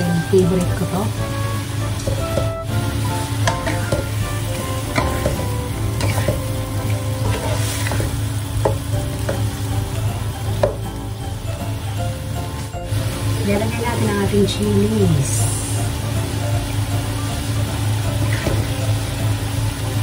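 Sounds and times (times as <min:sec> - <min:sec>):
fish simmering in sauce: 0:00.1 - 0:13.4, 0:14.1 - 0:20.0
spatula scraping a wok: 0:01.2 - 0:09.5, 0:18.2 - 0:18.8
utensil knocking on metal: 0:02.0 - 0:02.6, 0:03.4 - 0:04.2, 0:04.9 - 0:06.5, 0:10.6 - 0:10.8.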